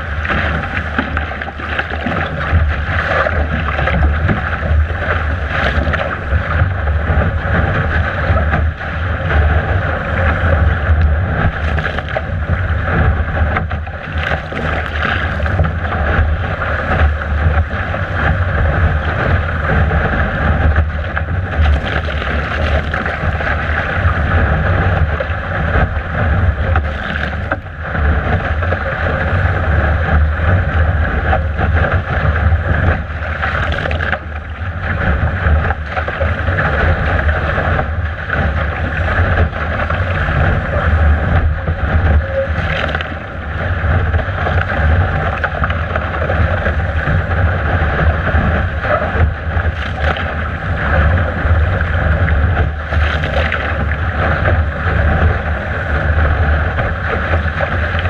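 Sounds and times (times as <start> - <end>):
water rushing along hull: 0.0 - 58.0
wind buffeting microphone: 0.0 - 58.0.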